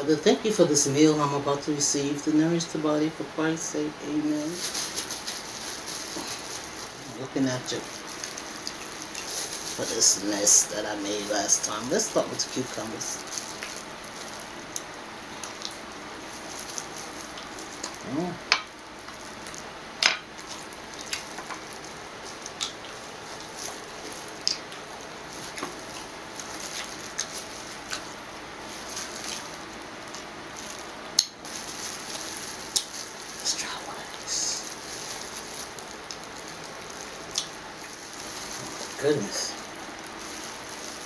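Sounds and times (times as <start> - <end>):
steady background hiss: 0.0 - 41.0
cucumber crunching: 7.7 - 41.0
chewing: 7.9 - 9.8, 13.2 - 18.0, 20.3 - 33.4, 34.7 - 39.0.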